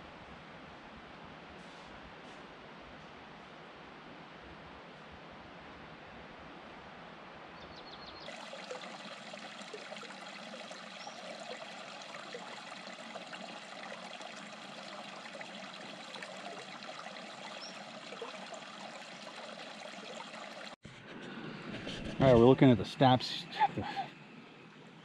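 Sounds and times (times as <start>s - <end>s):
creek running over rocks: 8.2s - 20.8s.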